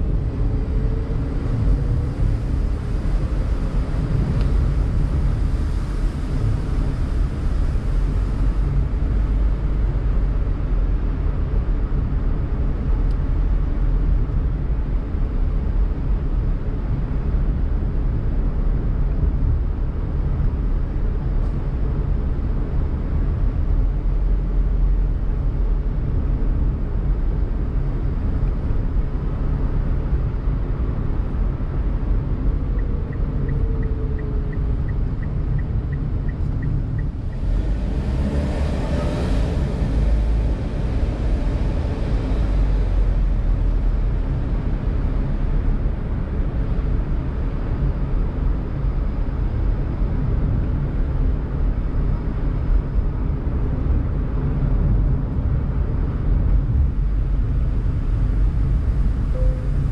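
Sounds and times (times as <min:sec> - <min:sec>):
car engine and road rumble: 0:00.0 - 0:59.9
rushing noise: 0:56.8 - 0:59.9.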